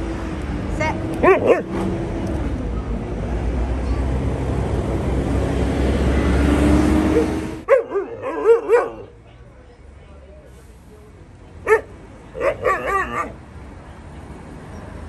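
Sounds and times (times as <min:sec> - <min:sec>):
dogs yipping and whining: 0:07.1 - 0:09.1, 0:12.4 - 0:13.4.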